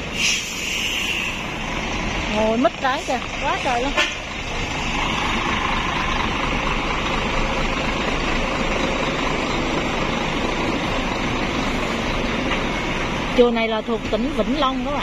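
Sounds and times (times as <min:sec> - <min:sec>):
diesel engine idling: 0:00.0 - 0:15.0.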